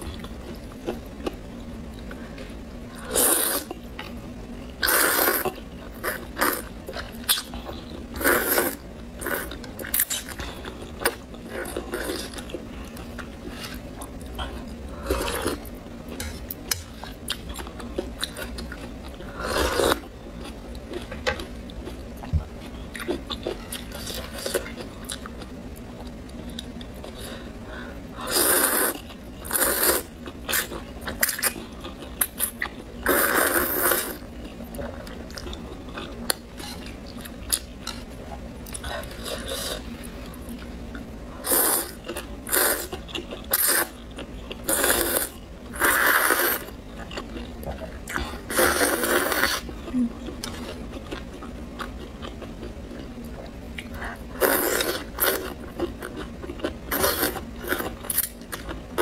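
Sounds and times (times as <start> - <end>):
chewing: 41.8 - 59.0.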